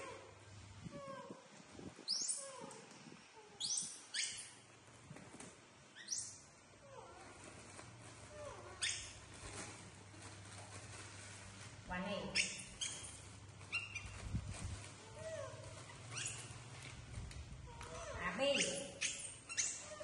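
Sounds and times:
monkey squeals: 0:16.0 - 0:16.5.

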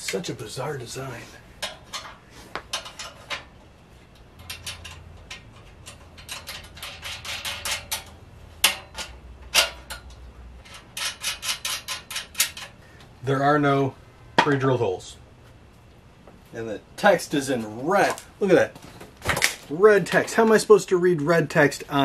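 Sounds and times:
metal parts clinking: 0:04.4 - 0:12.8.

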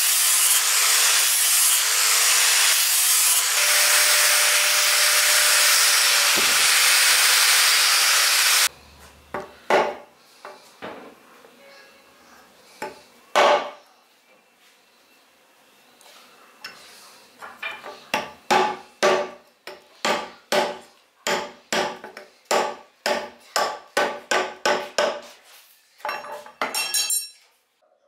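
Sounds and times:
angle grinder sanding wood: 0:00.0 - 0:08.7.

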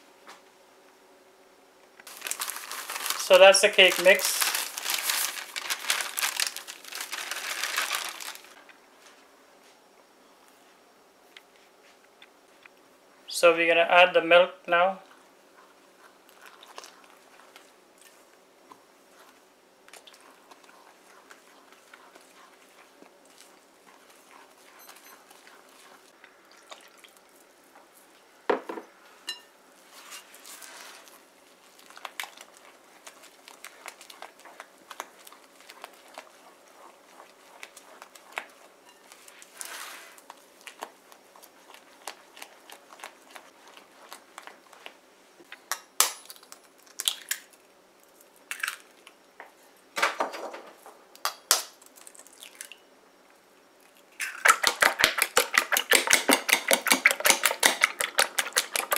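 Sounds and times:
spatula scraping glass bowl: 0:38.0 - 0:40.2.

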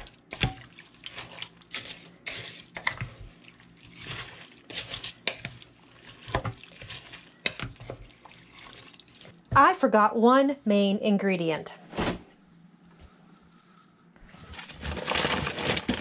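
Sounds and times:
spoon stirring wet food: 0:00.0 - 0:09.7.

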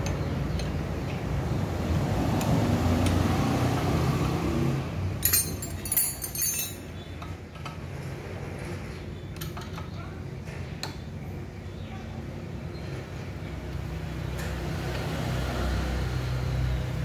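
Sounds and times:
metal spanner clinking and scraping: 0:05.2 - 0:06.9.

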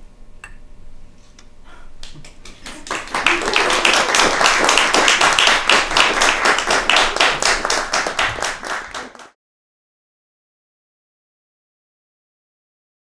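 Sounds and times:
audience applauding: 0:02.0 - 0:09.4.

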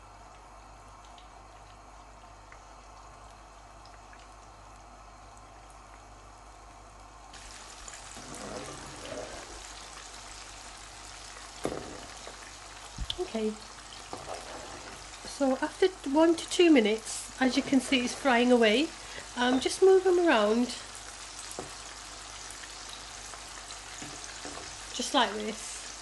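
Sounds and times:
food sizzling in hot oil: 0:07.3 - 0:26.0.

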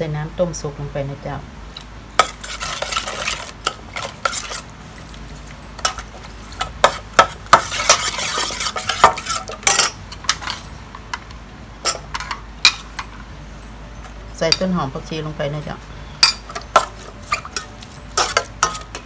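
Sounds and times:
spoon clinking and scraping pot: 0:02.2 - 0:04.6, 0:05.8 - 0:10.7, 0:16.2 - 0:19.0.

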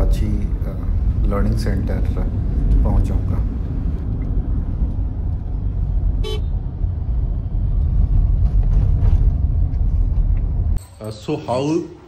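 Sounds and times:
car road noise rumble: 0:00.0 - 0:10.8
short vehicle horn toot: 0:06.2 - 0:06.5.

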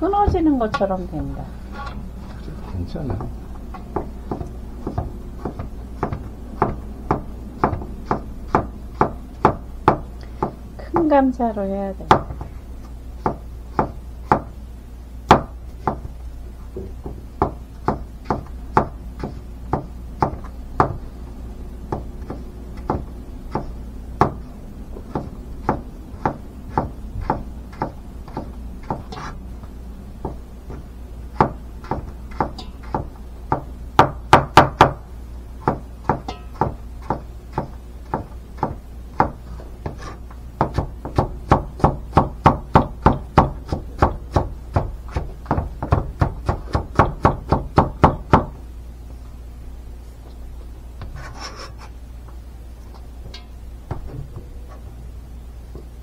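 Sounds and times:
knife chopping on cutting board: 0:03.9 - 0:10.6, 0:13.2 - 0:14.5, 0:25.1 - 0:29.4, 0:31.3 - 0:35.0, 0:35.6 - 0:48.5.

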